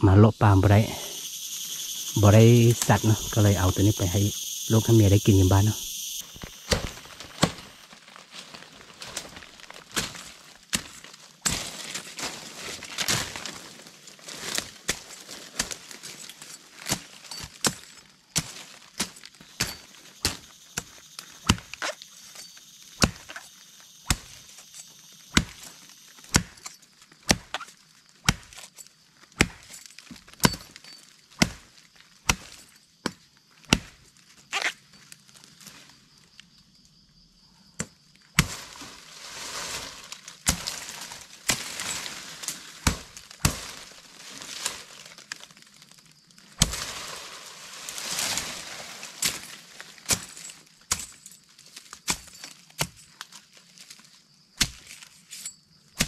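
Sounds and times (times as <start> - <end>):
drone of insects: 0.0 - 56.0.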